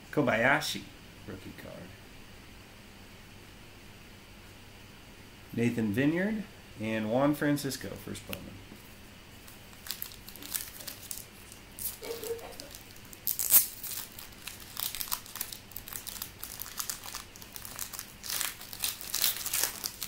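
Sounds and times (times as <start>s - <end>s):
foil wrapper crinkling: 9.4s - 20.0s.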